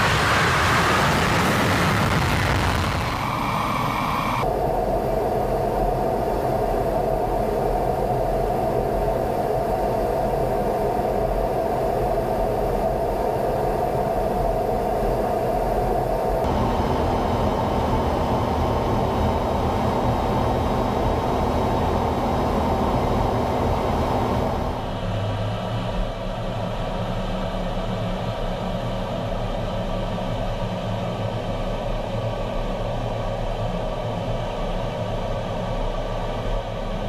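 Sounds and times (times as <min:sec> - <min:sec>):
jet engine and airflow roar: 0:00.0 - 0:37.0
steady tone: 0:16.4 - 0:25.0.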